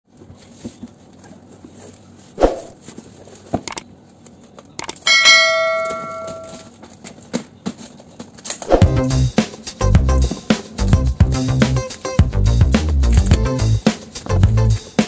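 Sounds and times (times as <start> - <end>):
bright bell chime: 5.1 - 6.6.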